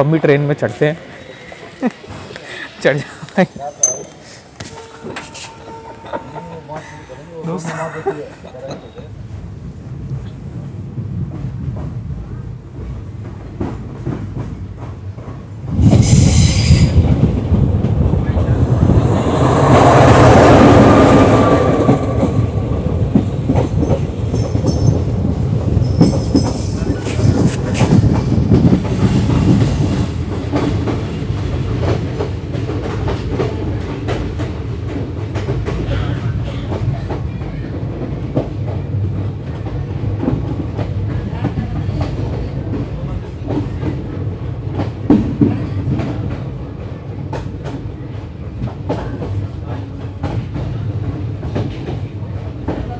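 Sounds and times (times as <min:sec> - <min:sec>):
train rumble: 0:00.0 - 0:52.9
train wheels clattering: 0:12.8 - 0:52.9.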